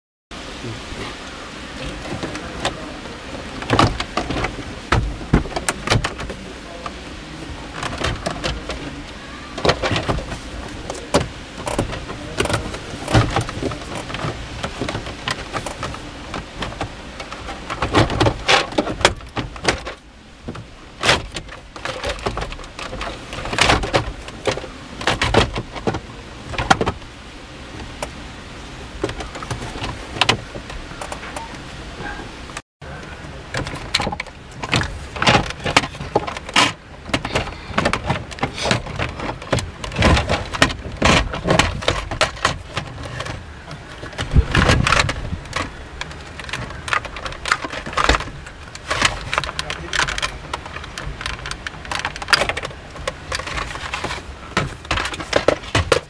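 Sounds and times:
plastic panel clicking and rattling: 1.8 - 27.1, 29.0 - 31.6, 33.2 - 56.0.

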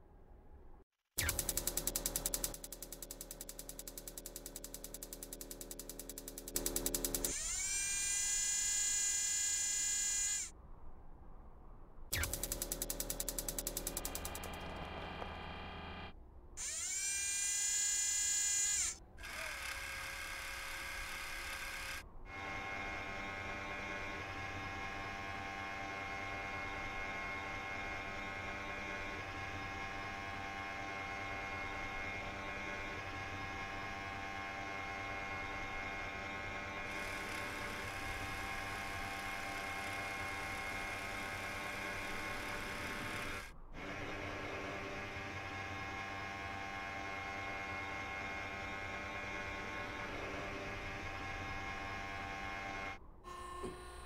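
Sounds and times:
electric motor whine: 1.2 - 10.5, 12.2 - 54.0
steady whir: 1.2 - 10.5, 12.1 - 54.0
hum of steady tones: 12.1 - 54.0.

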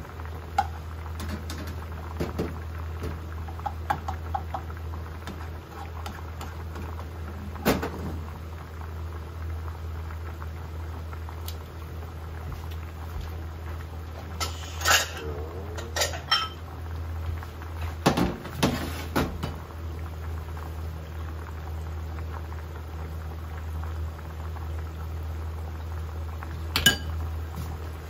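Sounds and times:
steady low hum: 0.0 - 18.6
water boiling in a pot: 0.0 - 28.0
kitchen utensils clinking: 14.4 - 16.6.

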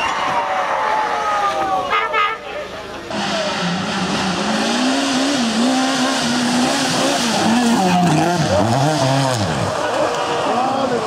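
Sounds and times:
rally car engine at high revs: 3.0 - 11.0.

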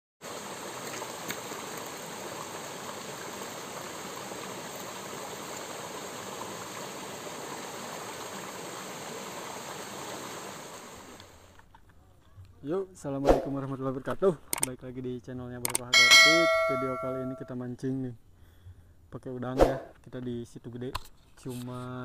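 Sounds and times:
running water rushing: 0.2 - 11.5.

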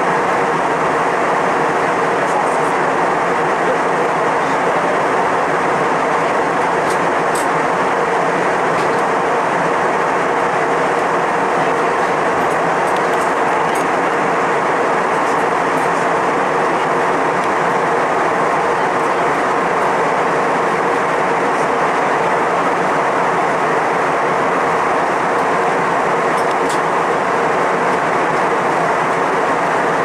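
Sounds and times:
engines and airflow rushing: 0.0 - 30.0.

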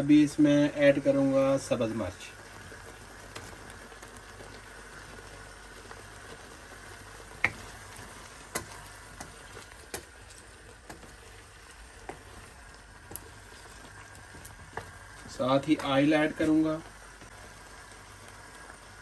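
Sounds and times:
sauce bubbling: 0.0 - 19.0
sharp pops and knocks: 7.4 - 7.8, 8.5 - 10.2.

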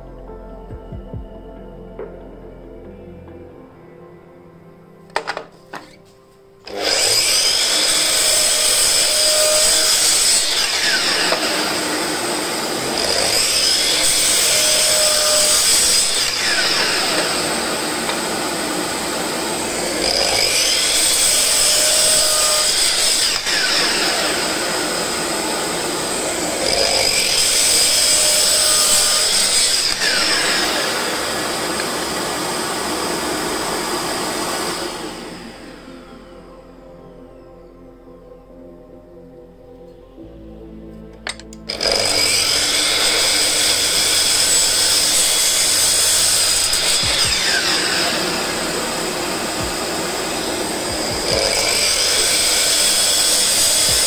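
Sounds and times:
miter saw cutting wood: 6.6 - 36.5, 41.2 - 54.0.

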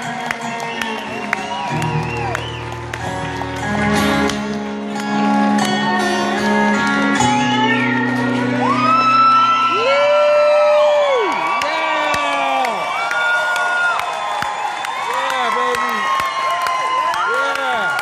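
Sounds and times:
audience whistling and whooping: 0.0 - 4.3, 8.5 - 18.0
acoustic guitar chords: 0.0 - 9.7.

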